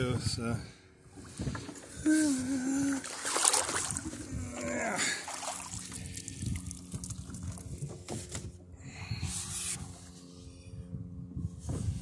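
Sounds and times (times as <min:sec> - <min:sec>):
water splashing against boat hull: 0:02.8 - 0:04.4, 0:05.0 - 0:08.5.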